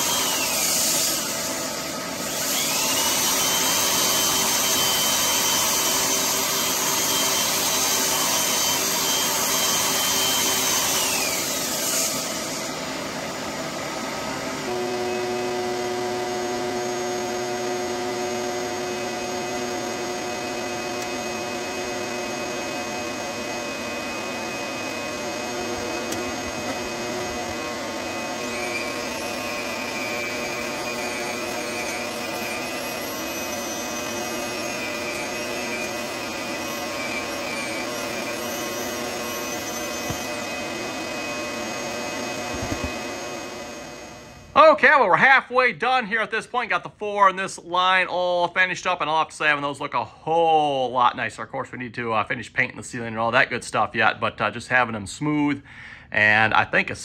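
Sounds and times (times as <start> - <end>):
power sander whining: 0.0 - 44.5.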